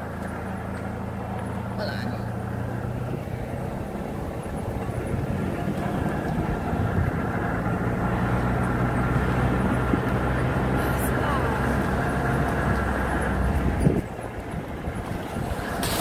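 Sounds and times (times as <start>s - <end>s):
car engine hum: 0.0s - 16.0s
tyres rolling over gravel: 0.0s - 16.0s.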